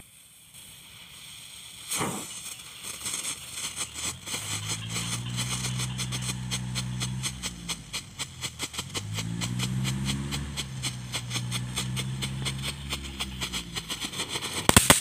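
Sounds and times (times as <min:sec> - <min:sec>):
firework whoosh and crackling: 0:00.0 - 0:15.0
steady low hum: 0:03.8 - 0:14.8.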